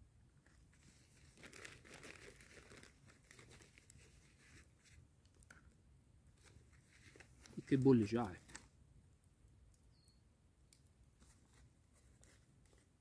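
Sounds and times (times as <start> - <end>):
plastic wrappers crinkling: 1.2 - 4.6.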